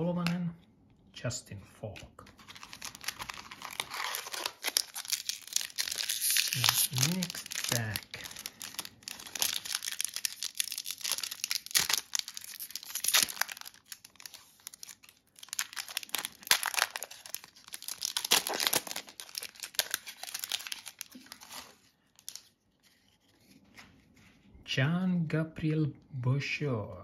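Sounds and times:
foil wrapper tearing and crinkling: 0:02.3 - 0:22.5.

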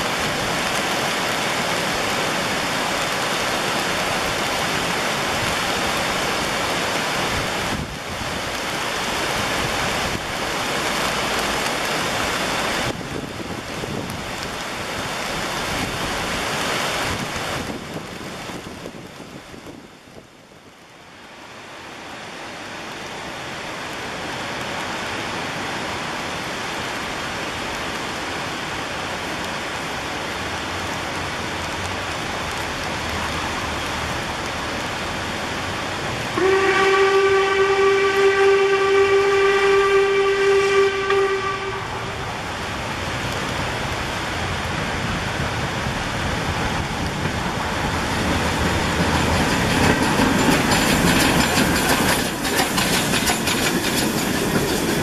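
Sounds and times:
rain: 0:00.0 - 0:55.0
river water rushing: 0:00.0 - 0:55.0
steam locomotive whistle: 0:36.3 - 0:42.3.

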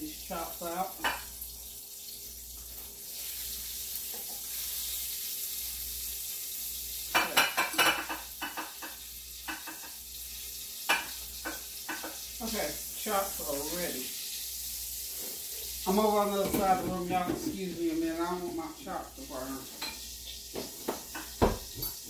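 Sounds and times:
meat sizzling in a pan: 0:00.0 - 0:16.6, 0:17.6 - 0:22.0
utensil clatter against pan: 0:07.1 - 0:10.0.

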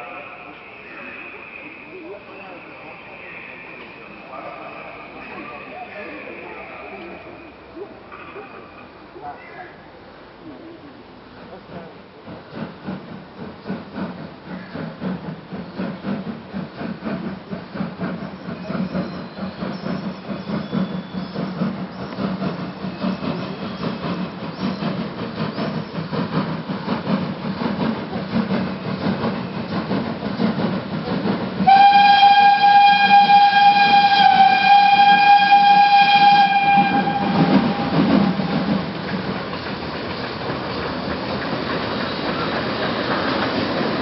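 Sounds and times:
train rumble: 0:00.0 - 0:44.0
steam whistle blast: 0:31.6 - 0:38.6.

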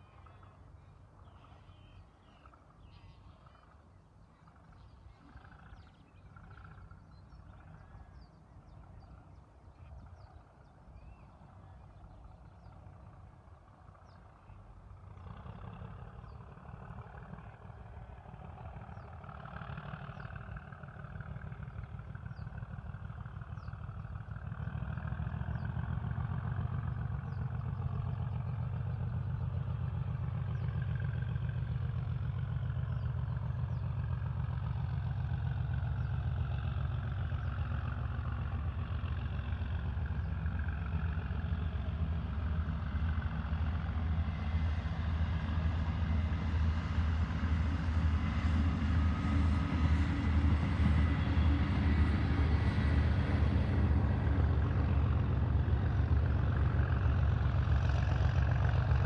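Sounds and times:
diesel locomotive engine throb: 0:14.9 - 0:59.0.

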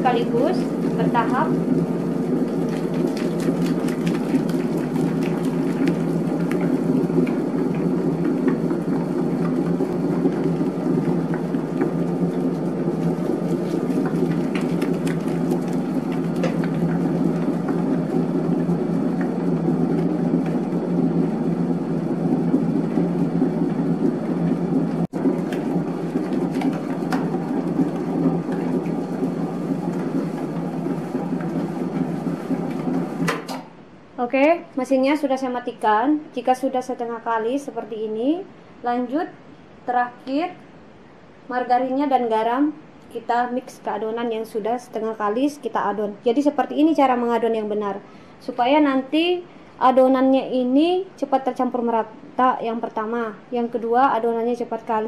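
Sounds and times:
dough mixer motor hum: 0:00.0 - 0:33.5.

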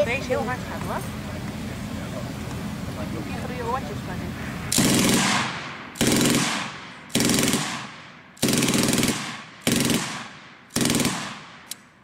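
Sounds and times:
machine gun firing bursts: 0:04.7 - 0:11.7.

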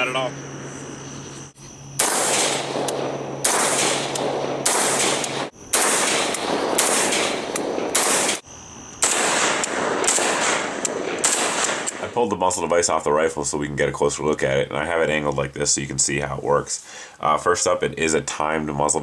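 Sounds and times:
rifle shots with echo: 0:02.0 - 0:08.4, 0:09.0 - 0:12.1.

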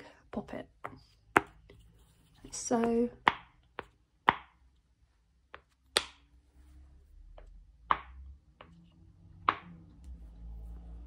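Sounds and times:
silicone pop-it popping: 0:03.2 - 0:04.7, 0:05.5 - 0:06.3, 0:07.8 - 0:08.7.

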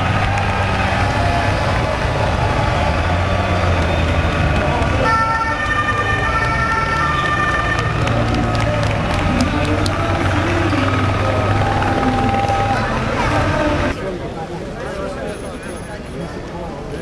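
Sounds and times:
busy outdoor noise: 0:00.0 - 0:17.0
siren-like tone: 0:05.0 - 0:08.5.

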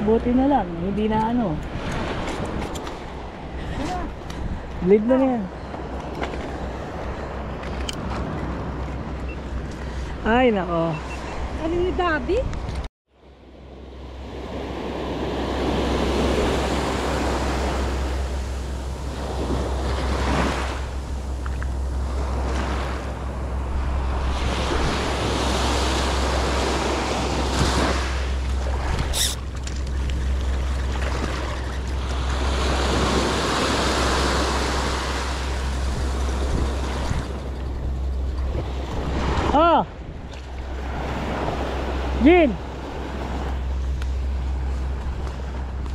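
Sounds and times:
wind rumbling on microphone: 0:00.0 - 0:12.9, 0:13.6 - 0:45.9
ocean surf breaking: 0:13.4 - 0:45.9.

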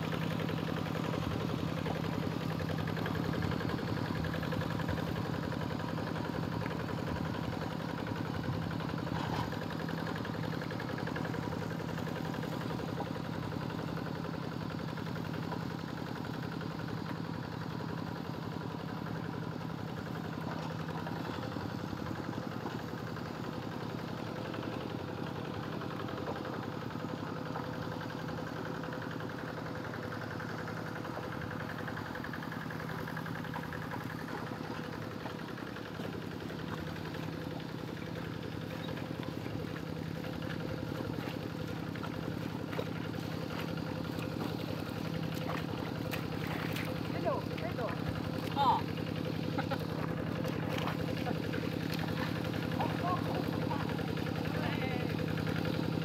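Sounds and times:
hand tractor engine running: 0:00.0 - 0:56.0.

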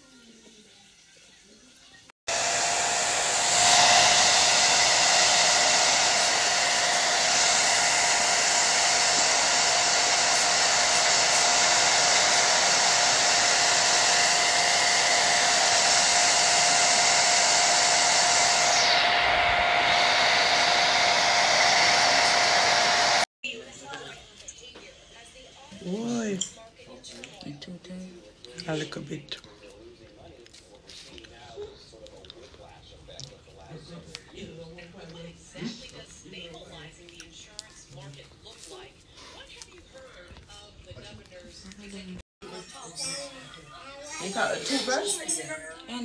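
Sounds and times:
blow dryer running: 0:02.3 - 0:23.3, 0:44.1 - 0:46.0.

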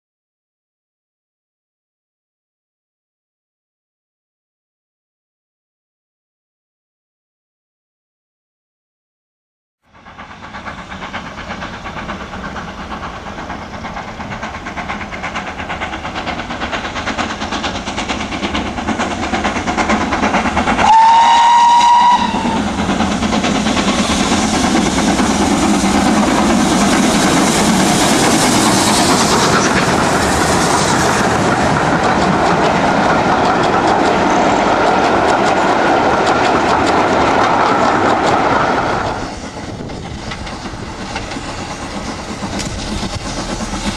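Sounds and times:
steam locomotive: 0:09.9 - 0:43.9
train wheels on rails: 0:09.9 - 0:43.9
steam whistle blast: 0:20.8 - 0:22.7.

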